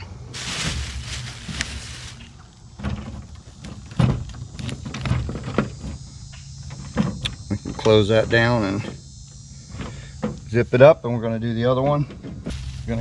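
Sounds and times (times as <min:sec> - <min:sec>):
plastic bag rustling: 0:00.3 - 0:03.6, 0:12.5 - 0:13.0.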